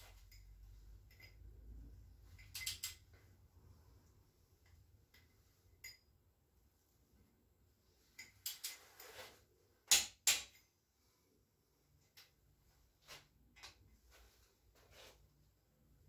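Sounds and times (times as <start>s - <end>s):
metal hand tools clinking: 0.1s - 1.5s, 2.3s - 3.2s.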